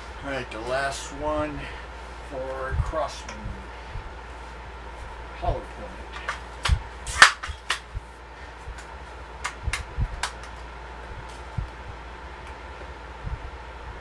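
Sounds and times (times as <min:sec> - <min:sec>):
air rifle sharp snap: 0:06.3 - 0:07.9.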